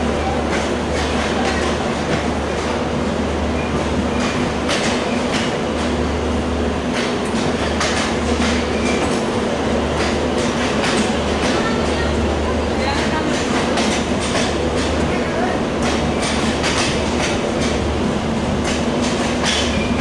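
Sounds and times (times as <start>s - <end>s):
train rumble: 0.0s - 20.0s
train wheels clicking over rail joints: 3.6s - 6.1s, 6.8s - 12.0s, 13.0s - 20.0s.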